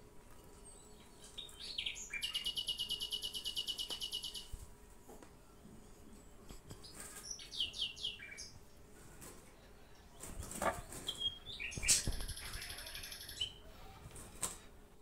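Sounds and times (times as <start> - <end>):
bird buzzy chatter: 0.4 - 4.6, 6.2 - 14.5
small bird chirping: 0.5 - 4.6, 6.8 - 8.6, 10.0 - 13.6.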